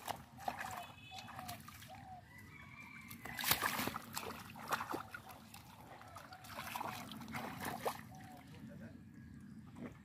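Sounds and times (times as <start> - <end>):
sharp wet slaps: 0.0 - 2.0, 3.1 - 5.8
hands squelching in wet mud: 0.0 - 8.7.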